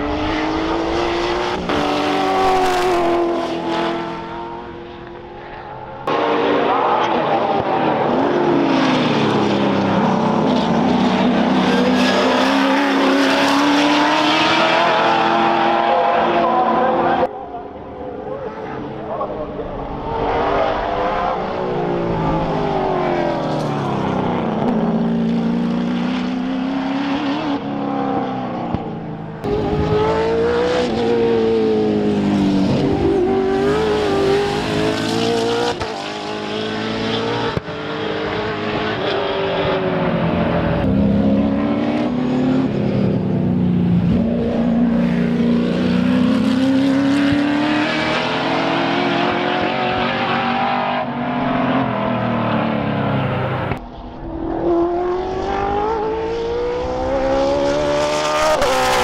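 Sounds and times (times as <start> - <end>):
race car engines at speed: 0.0 - 59.0.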